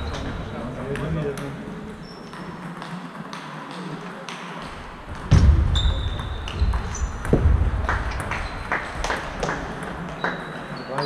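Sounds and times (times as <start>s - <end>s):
heavy low thuds: 5.1s - 8.6s.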